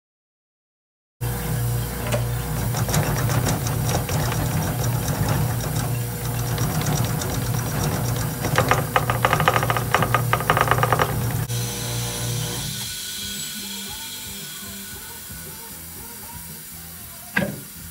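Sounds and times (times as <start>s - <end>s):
machine pump humming: 1.2s - 16.8s
dense rapid rattle: 2.4s - 11.5s.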